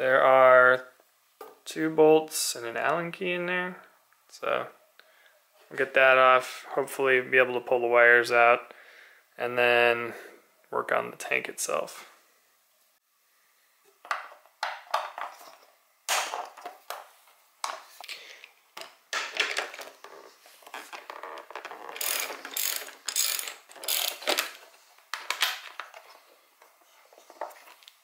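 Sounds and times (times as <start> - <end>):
hand ratchet clicking: 21.9 - 24.5.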